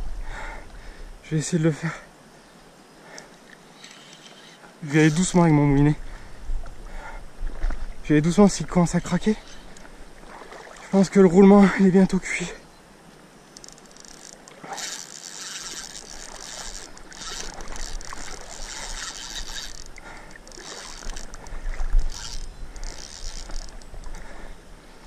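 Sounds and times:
spinning reel grinding: 0:03.8 - 0:05.4, 0:13.6 - 0:21.4, 0:22.0 - 0:23.8.

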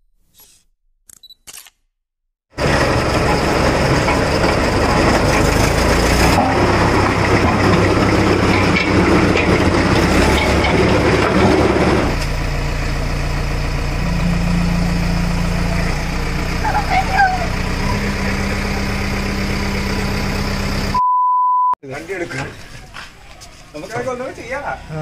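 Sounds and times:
road roller engine running: 0:02.5 - 0:21.0
backhoe engine idling: 0:02.6 - 0:21.0.

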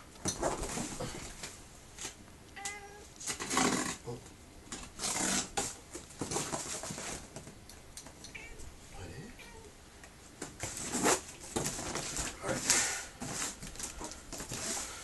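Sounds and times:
cat meow: 0:02.6 - 0:03.0, 0:08.3 - 0:08.6
cardboard boxes scraping: 0:03.2 - 0:04.0, 0:04.8 - 0:07.3, 0:10.6 - 0:15.0.

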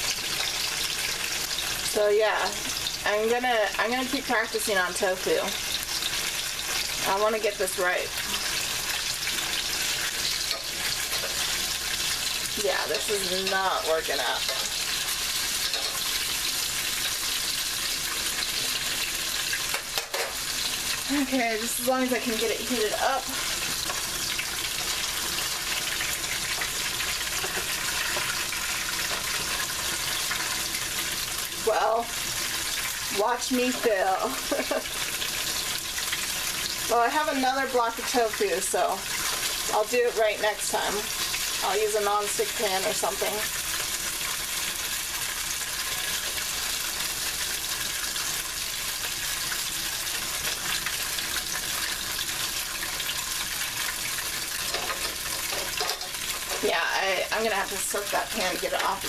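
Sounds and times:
tofu sizzling in oil: 0:00.0 - 0:59.0
spatula scraping pan: 0:08.2 - 0:31.4, 0:53.8 - 0:59.0.

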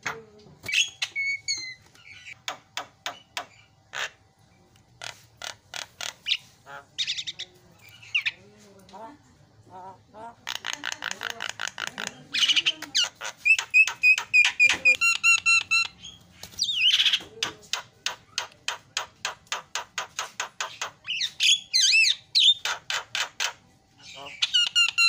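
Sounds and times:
bird singing varied song: 0:00.6 - 0:02.4, 0:06.0 - 0:08.5, 0:10.5 - 0:17.3, 0:20.6 - 0:22.8, 0:24.0 - 0:25.0.

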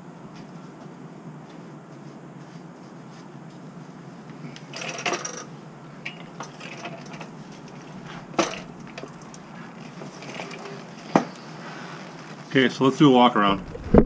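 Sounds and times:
steady low hum: 0:00.0 - 0:14.0
small hard objects clattering: 0:04.7 - 0:11.5.

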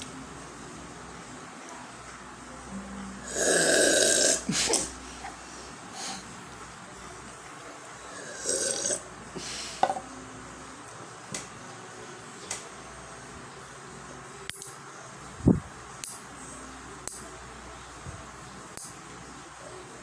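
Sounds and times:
person burping: 0:03.2 - 0:04.9, 0:08.4 - 0:09.0.

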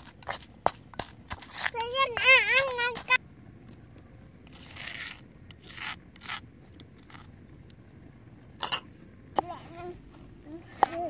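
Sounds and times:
metal spoon scraping stone mortar: 0:04.5 - 0:07.3.

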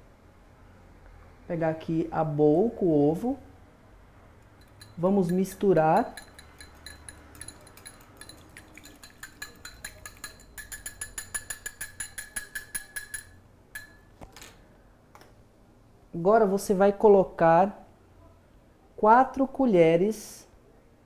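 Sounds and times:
whisk clinking against bowl: 0:04.6 - 0:14.1.

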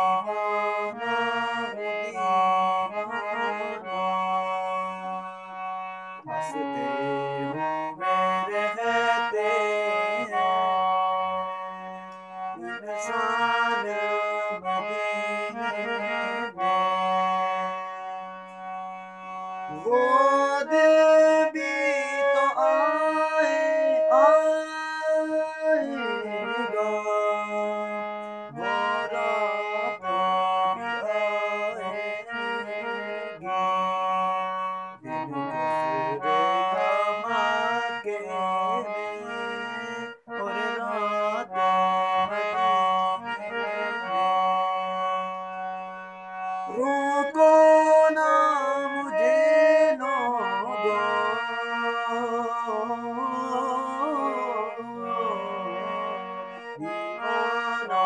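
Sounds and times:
harmonium melody over drone: 0:00.0 - 0:58.0
wordless voice singing: 0:00.0 - 0:58.0.

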